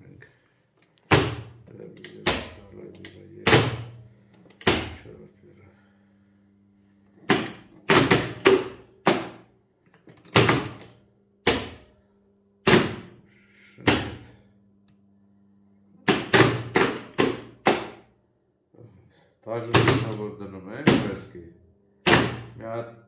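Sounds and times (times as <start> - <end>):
faint electrical hum: 0.0 - 23.0
electrical contactors clacking: 0.8 - 5.1.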